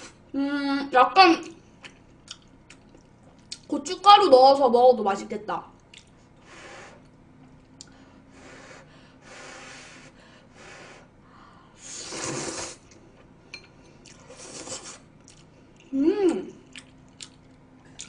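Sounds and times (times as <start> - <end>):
person slurping noodles: 11.8 - 12.8, 14.2 - 15.1.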